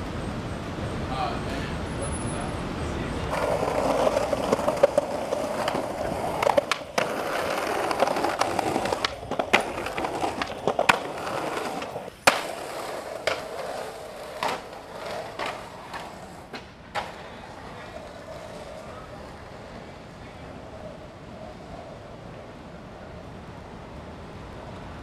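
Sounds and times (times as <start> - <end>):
skateboard wheels rolling on pavement: 0.0 - 25.0
skateboard clacking on ground: 3.2 - 22.2.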